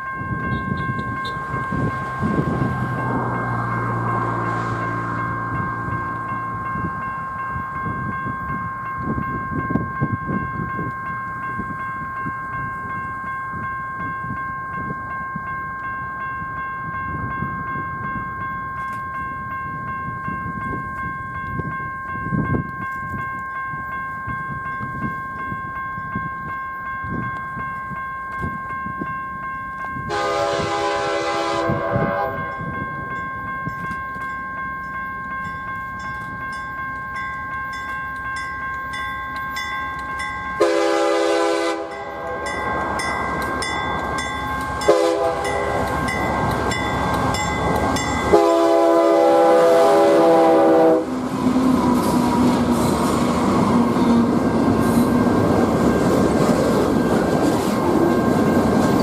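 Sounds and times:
two-note high ringing: 0.0s - 2.2s
freight train rumbling: 0.0s - 59.0s
locomotive air horn: 30.1s - 32.5s, 40.6s - 42.5s, 44.9s - 45.8s, 48.3s - 51.1s.

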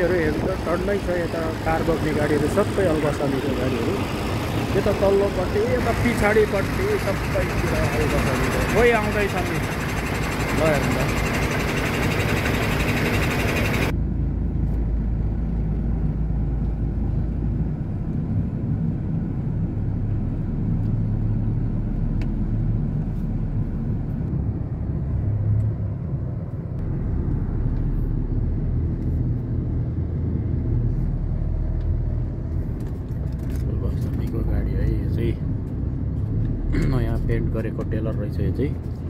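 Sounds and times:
truck diesel engine rumble: 0.0s - 18.0s.

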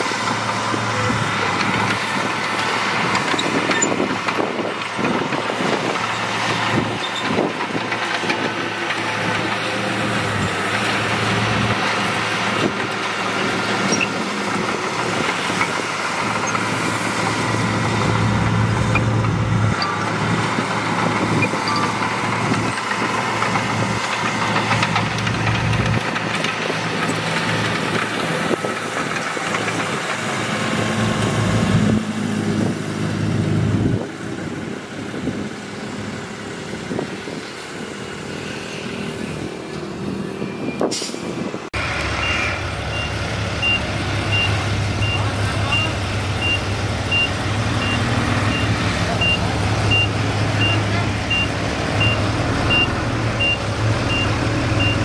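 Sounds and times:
heavy diesel machinery engines: 0.0s - 55.0s
reversing alarm beeping: 42.2s - 55.0s.

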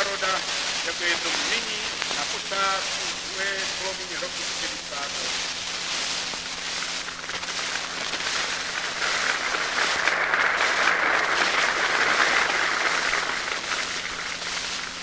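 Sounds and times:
recording hum and hiss: 0.0s - 15.0s
crowd applauding and cheering: 9.2s - 14.4s.

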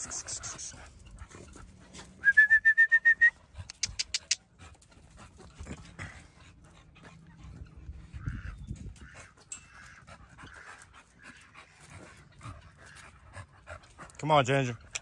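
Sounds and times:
dog panting: 0.0s - 2.2s, 3.2s - 15.0s
sharp clicks: 3.7s - 4.4s.

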